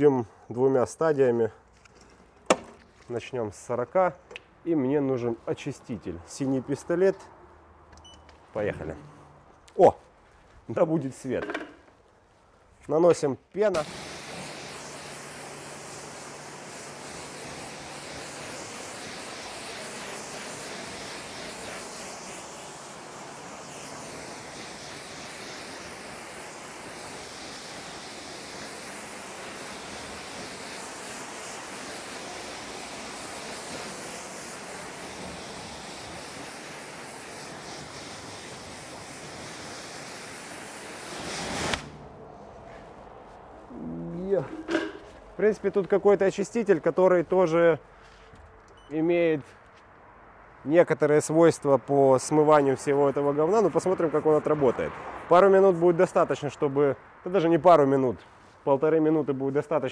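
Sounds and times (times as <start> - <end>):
high-pressure spray hissing: 13.8 - 42.0.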